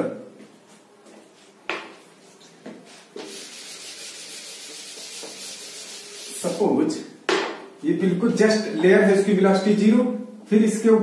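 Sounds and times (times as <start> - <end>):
duster rubbing on chalkboard: 2.9 - 6.7.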